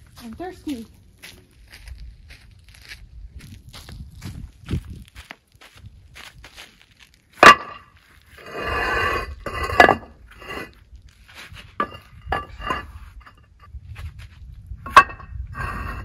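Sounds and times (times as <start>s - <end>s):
paver scraping slide: 8.4s - 10.7s, 14.9s - 16.0s.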